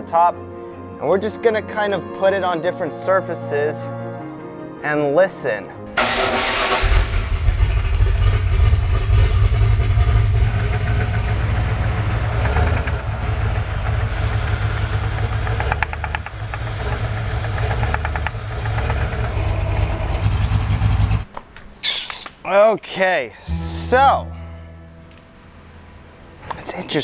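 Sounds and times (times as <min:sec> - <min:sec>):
rapid engine ticking: 0:06.0 - 0:21.2
engine idling: 0:06.0 - 0:21.3.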